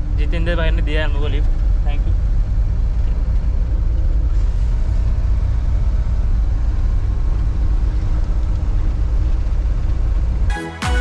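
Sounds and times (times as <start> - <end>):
vehicle engine and road noise: 0.0 - 11.0.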